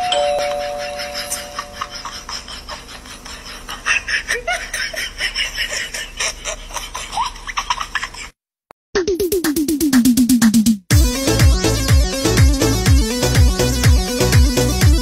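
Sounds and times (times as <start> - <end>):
person giggling: 0.2 - 8.3
electronic music with pulsing beat: 9.0 - 15.0.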